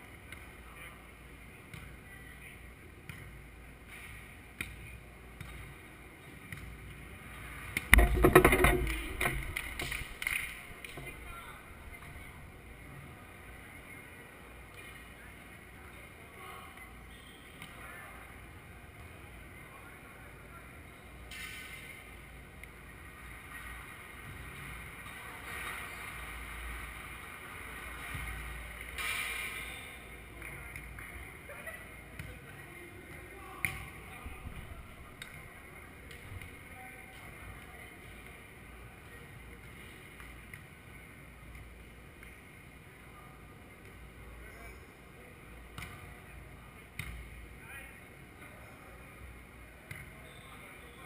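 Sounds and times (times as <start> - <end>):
faint volleyball contacts: 0.0 - 51.0
net and post rattling and thumping: 7.9 - 11.3.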